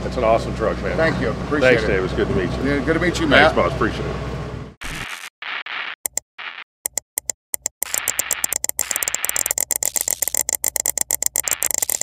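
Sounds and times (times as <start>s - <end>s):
glitchy stuttering static: 4.8s - 6.7s, 7.8s - 12.0s.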